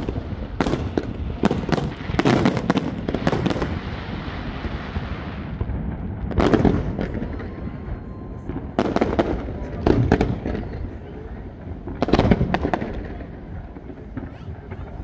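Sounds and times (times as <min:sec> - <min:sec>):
fireworks crackling hiss: 0:00.0 - 0:07.8.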